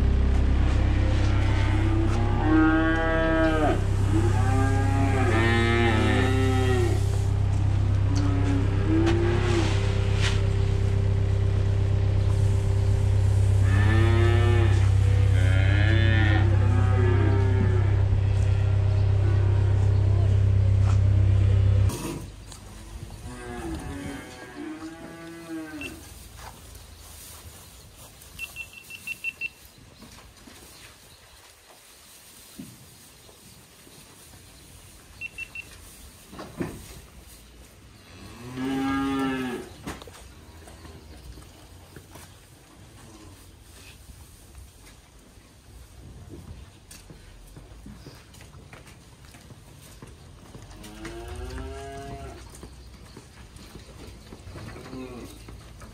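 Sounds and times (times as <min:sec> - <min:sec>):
low engine hum: 0:00.0 - 0:24.3
calf mooing: 0:00.2 - 0:10.3, 0:13.6 - 0:20.6, 0:23.2 - 0:26.1, 0:38.2 - 0:39.8
quick high beeps: 0:35.2 - 0:35.7.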